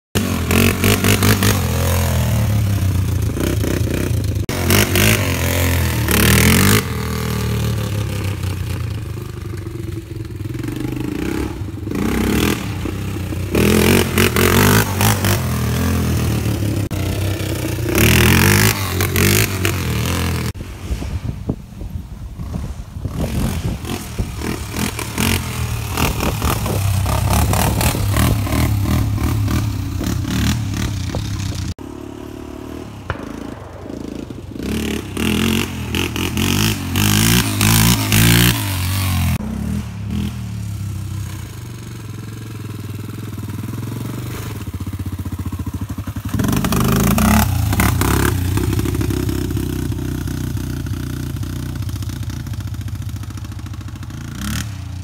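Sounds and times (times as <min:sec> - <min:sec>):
loud rushing bursts: 0:31.8 - 0:39.4.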